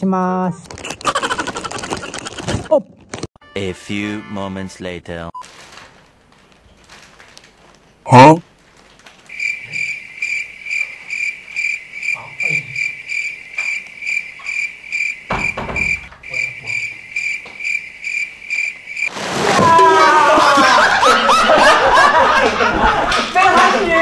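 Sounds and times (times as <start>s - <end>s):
cricket chirping: 9.2s - 19.1s
knock: 15.3s - 16.1s
shouting and commotion: 19.5s - 21.5s, 22.8s - 24.0s.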